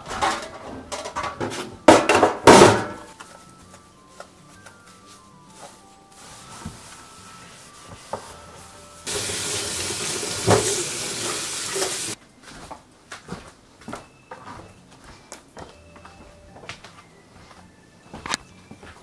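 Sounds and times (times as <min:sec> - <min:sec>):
tap running into metal sink: 0:09.1 - 0:12.2.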